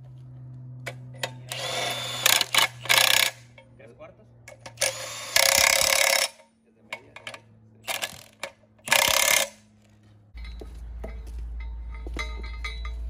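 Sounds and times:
impact wrench hammering: 0.9 - 3.7, 4.5 - 9.7, 10.4 - 13.0
metal nuts clicking: 1.2 - 3.7, 4.5 - 9.6.

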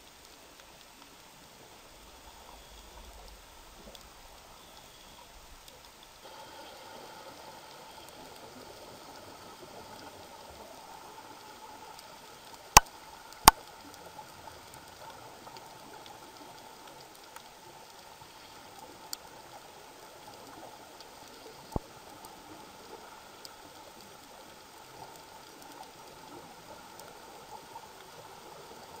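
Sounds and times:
underwater hiss: 6.2 - 12.2.

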